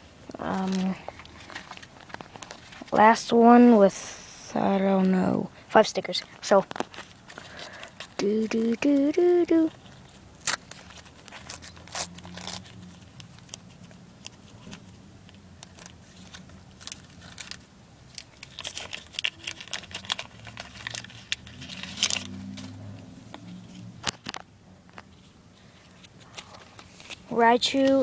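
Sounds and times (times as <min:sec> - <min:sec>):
wrapper tearing and crinkling: 0:09.8 - 0:14.0, 0:15.6 - 0:22.8.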